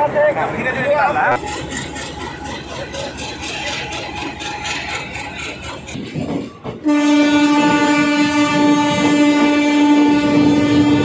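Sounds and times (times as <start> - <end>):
locomotive horn blast: 6.8 - 11.0.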